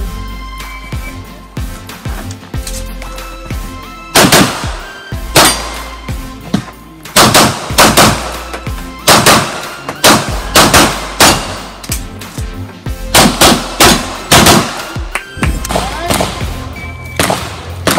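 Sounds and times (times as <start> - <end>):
pistol shots: 4.1 - 5.9, 7.1 - 12.1, 13.1 - 16.6, 17.2 - 17.9.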